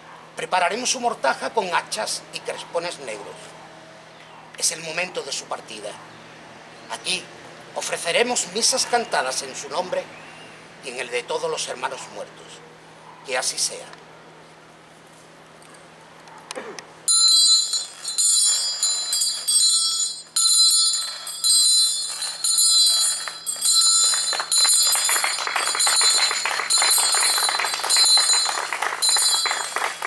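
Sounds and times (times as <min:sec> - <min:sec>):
handbell ringing: 0:17.1 - 0:30.0.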